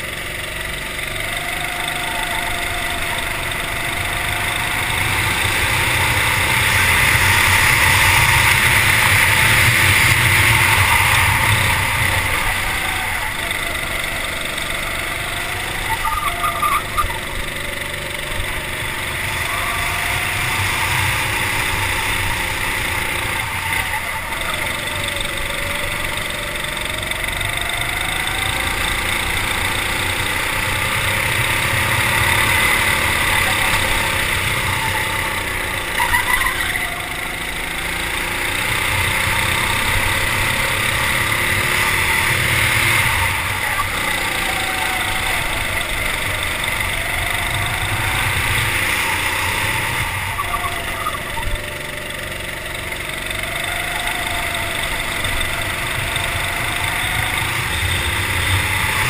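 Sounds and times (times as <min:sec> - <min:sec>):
racing kart engine: 0:00.0 - 0:59.0.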